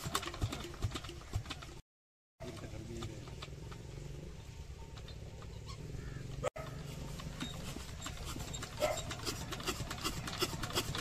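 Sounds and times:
diesel engine clacking: 6.3s - 11.0s.

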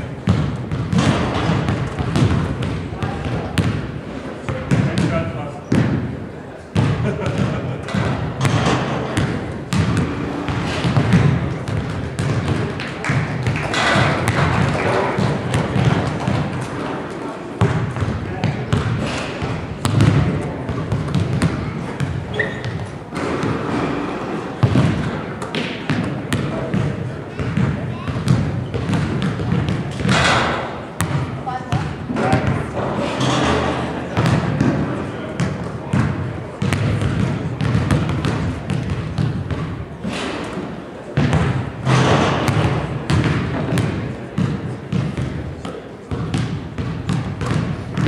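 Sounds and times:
background chatter: 0.0s - 48.0s
basketball bouncing on gym floor: 0.1s - 16.9s, 17.6s - 24.0s, 24.6s - 40.4s, 41.2s - 48.0s.

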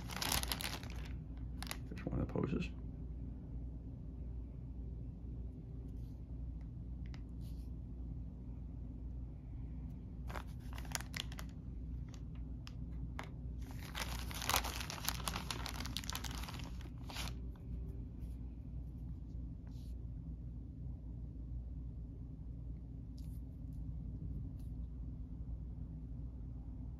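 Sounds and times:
plastic bag crinkling: 0.0s - 2.0s, 10.2s - 12.4s, 13.1s - 17.4s.

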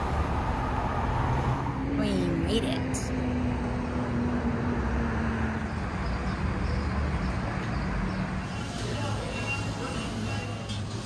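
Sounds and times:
engine hum: 0.0s - 11.0s
passing vehicles rushing: 0.0s - 11.0s.

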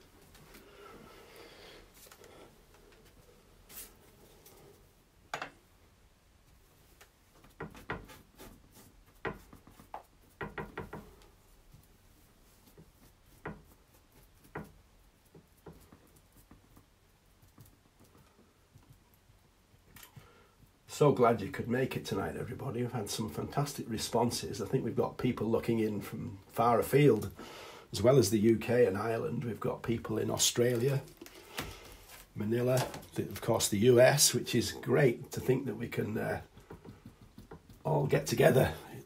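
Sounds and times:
paintbrush tapping on canvas: 36.5s - 37.9s.

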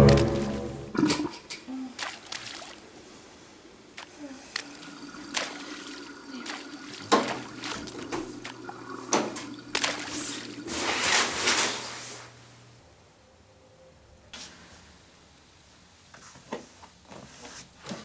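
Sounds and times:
water splashing and trickling: 0.0s - 3.3s, 4.0s - 11.3s
low steady hum: 0.0s - 10.9s.

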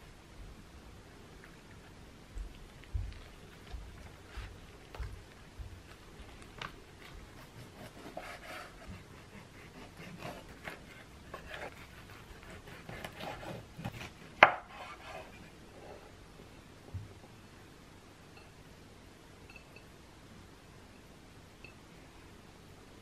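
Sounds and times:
hands rolling cabbage leaves: 1.4s - 15.5s
knife slicing cabbage: 7.0s - 15.5s.

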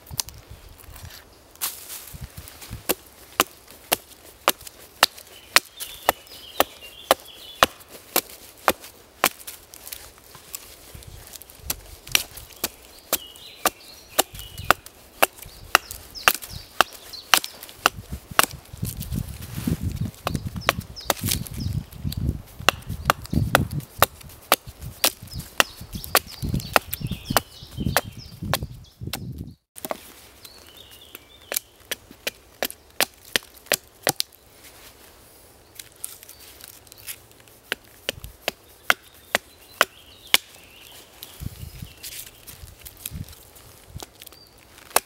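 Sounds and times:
axe chopping wood: 2.8s - 9.6s, 11.6s - 19.0s, 20.2s - 21.5s, 22.6s - 30.0s, 31.5s - 34.3s, 37.7s - 40.6s.

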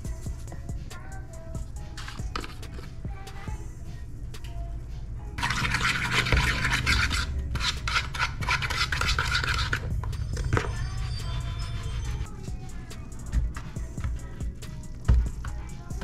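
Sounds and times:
spoon scraping plastic bowl: 5.4s - 12.2s.

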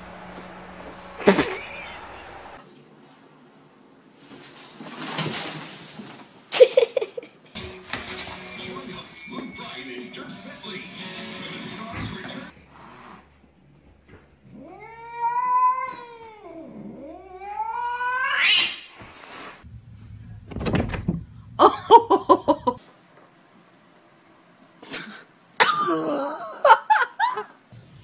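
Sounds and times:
cats meowing: 1.2s - 2.6s, 14.4s - 18.7s.

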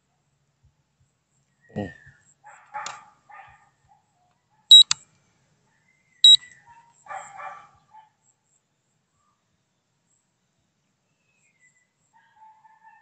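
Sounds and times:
short high electronic beeps: 4.7s - 5.0s.

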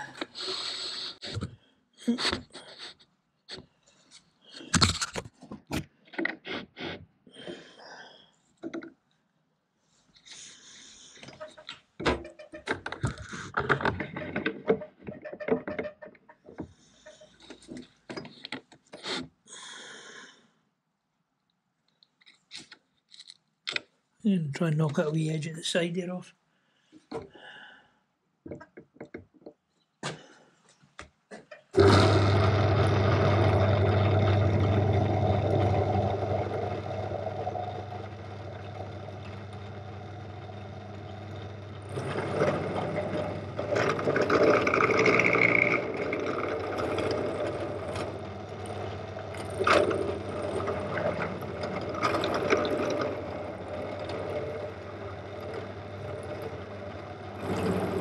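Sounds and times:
cutter grinding into metal: 31.8s - 58.0s
drill motor humming: 31.8s - 58.0s.

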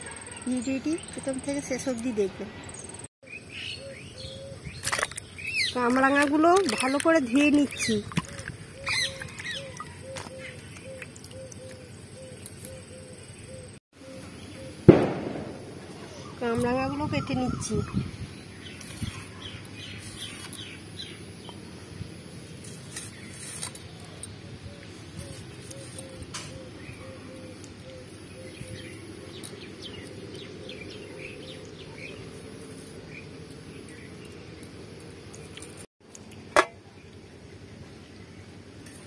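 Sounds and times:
birds chirping: 0.0s - 35.9s
sharp loud knock: 14.9s - 15.8s.

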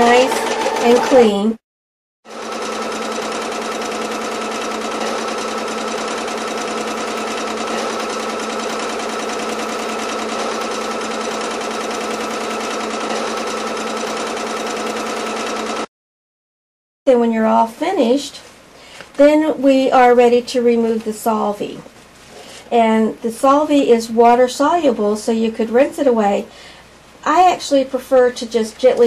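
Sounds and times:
sewing machine running: 0.0s - 1.4s, 2.3s - 15.9s.

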